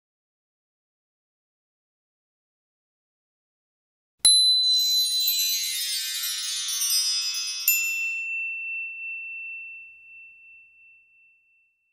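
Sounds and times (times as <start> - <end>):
shimmering bell-like chimes: 4.3 - 11.9
bright ding: 7.6 - 11.9.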